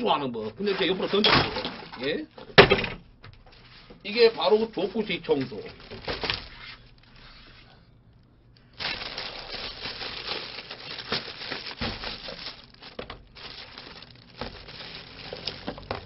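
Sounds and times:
plastic bag crinkling: 4.1 - 7.5, 8.6 - 16.0.

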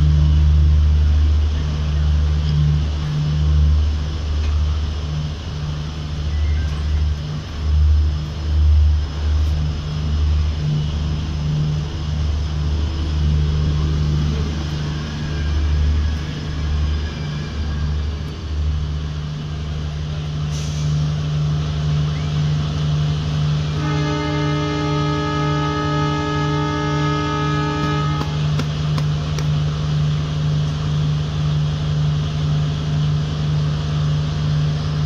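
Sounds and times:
train rumbling: 0.0 - 35.0
brief hiss: 20.4 - 21.1.

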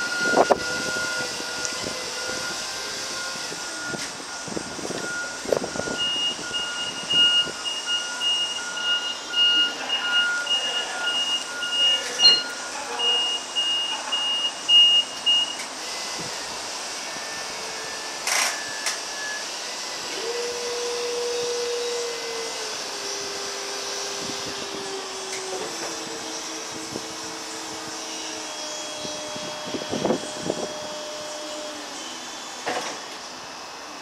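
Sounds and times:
forklift reversing alarm beeping: 0.0 - 19.6
hydraulic pump motor whine: 0.0 - 34.0.

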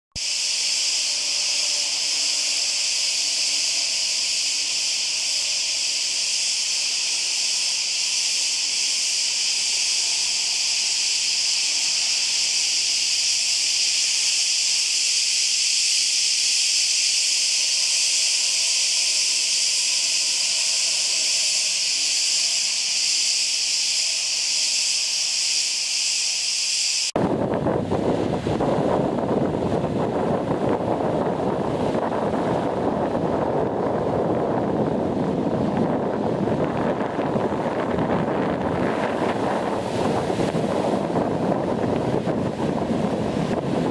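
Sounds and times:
cicadas buzzing: 0.2 - 43.9
wind on microphone: 26.9 - 43.9.

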